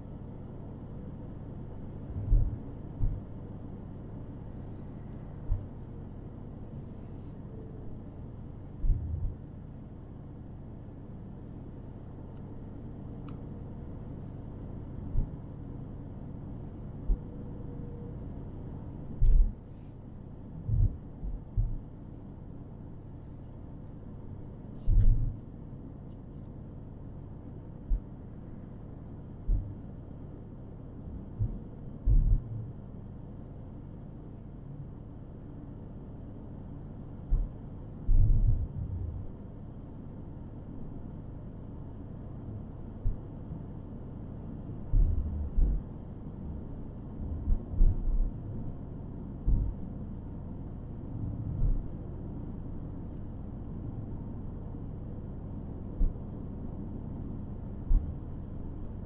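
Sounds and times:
short low thumps: 20.6s - 21.8s, 31.4s - 32.6s.

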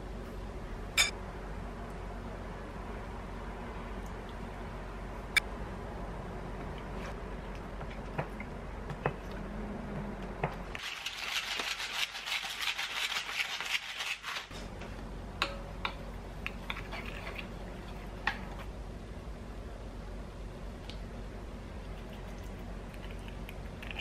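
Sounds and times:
pepper mill grinding: 10.8s - 14.5s.

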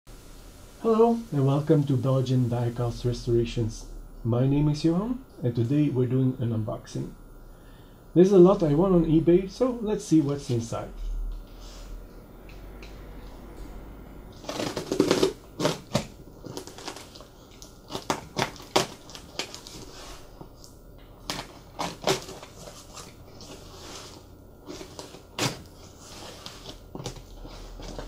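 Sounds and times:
tape crackling as it peels: 14.3s - 28.0s
knife slitting tape and cardboard: 14.4s - 16.0s.

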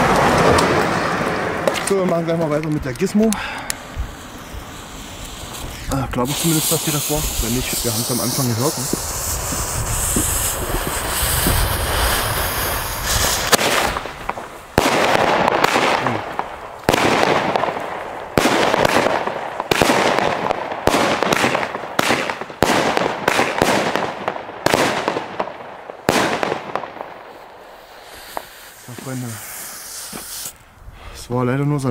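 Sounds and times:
firework bangs: 0.0s - 30.6s
fuse hissing: 3.3s - 13.5s, 27.3s - 31.2s.

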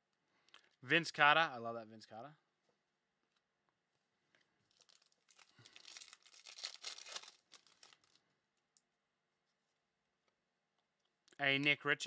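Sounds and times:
foil wrapper crinkling and tearing: 4.7s - 8.2s.

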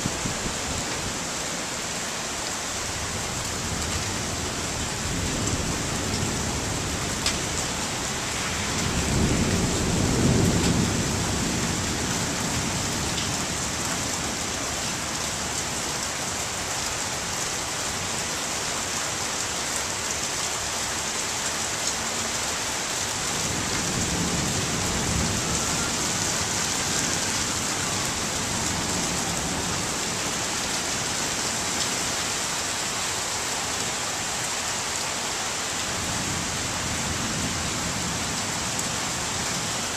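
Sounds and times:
heavy rain falling: 0.0s - 39.9s
thunder rumbling: 5.1s - 13.2s.

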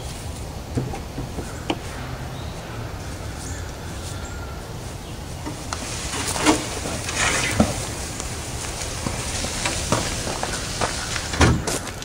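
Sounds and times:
footsteps crunching on pine needles: 3.0s - 12.0s.

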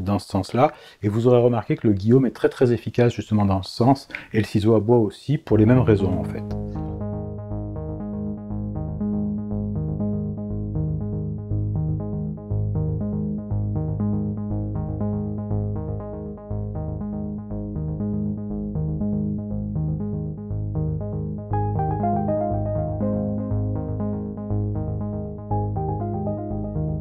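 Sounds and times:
instrumental background music: 5.5s - 27.0s.

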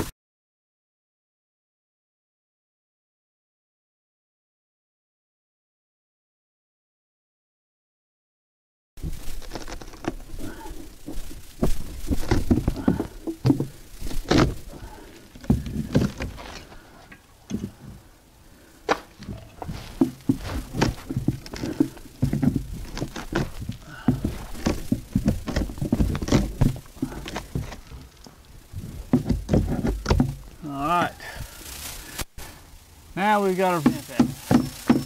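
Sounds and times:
hammer knocking on wood: 33.8s - 35.0s.

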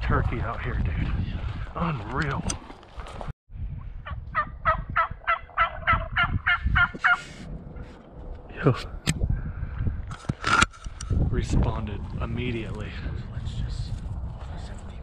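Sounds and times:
turkey answering: 4.0s - 7.2s
turkey call yelping: 4.0s - 7.3s.

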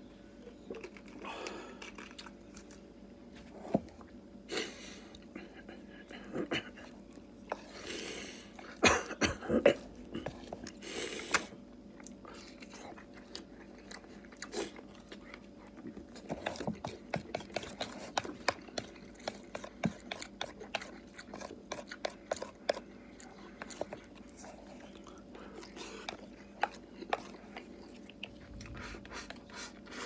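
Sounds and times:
person chewing: 0.5s - 2.9s, 9.6s - 30.0s.

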